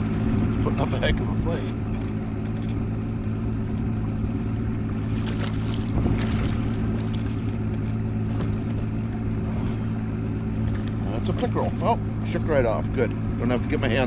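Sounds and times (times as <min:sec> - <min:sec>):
small boat motor hum: 0:00.0 - 0:14.0
fish splashing at surface: 0:05.1 - 0:07.5.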